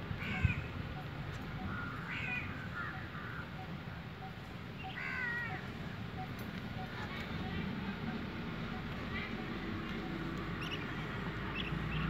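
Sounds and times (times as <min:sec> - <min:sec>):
crow cawing: 0:01.6 - 0:03.5, 0:04.8 - 0:05.6.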